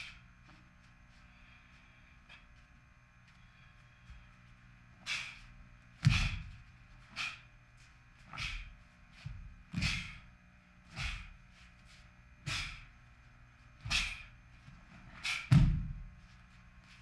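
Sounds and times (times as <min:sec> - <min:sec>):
feet thudding on floor: 0:06.0 - 0:06.8, 0:08.4 - 0:10.3, 0:13.8 - 0:17.0.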